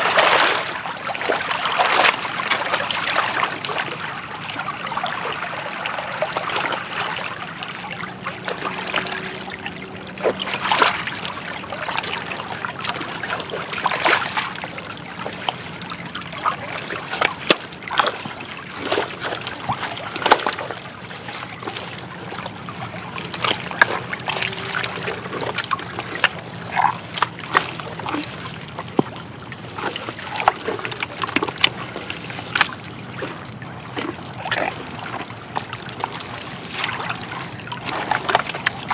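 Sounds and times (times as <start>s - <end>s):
wet mud squelching: 16.0s - 38.9s.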